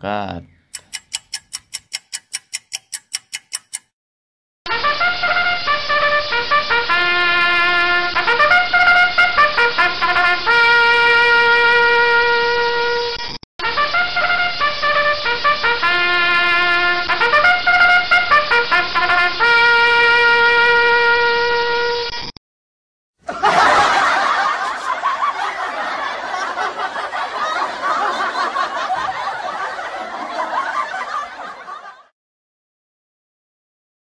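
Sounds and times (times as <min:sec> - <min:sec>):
rapid even ticking: 0:00.7 - 0:03.9
brass-toned horn melody: 0:04.7 - 0:22.1.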